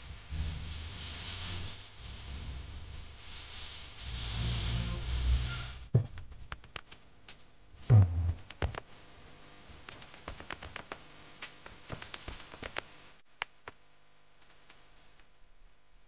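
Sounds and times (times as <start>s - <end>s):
heavy thump: 5.9s - 6.1s, 7.9s - 8.4s.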